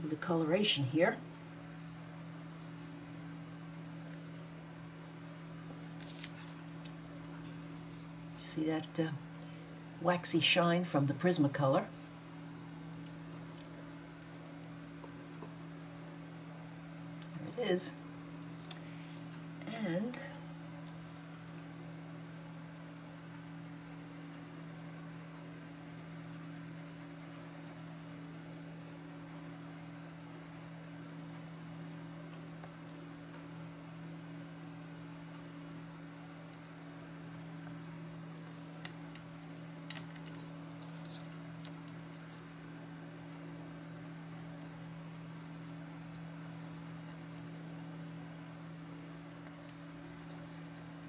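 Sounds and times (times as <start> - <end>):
coloured pencil scratching on card: 0.0 - 6.6, 22.8 - 33.1, 34.9 - 38.5, 40.2 - 41.4, 42.1 - 51.0.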